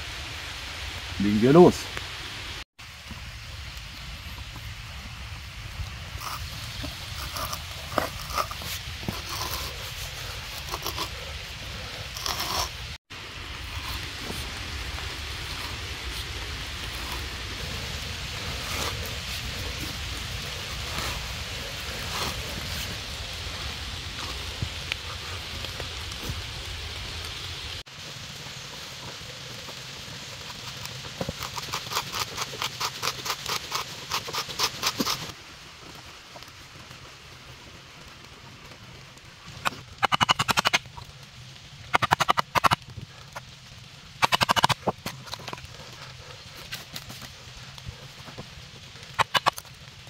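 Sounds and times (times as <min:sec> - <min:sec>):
hand auger scraping into wood: 0:06.2 - 0:13.0, 0:30.4 - 0:35.3.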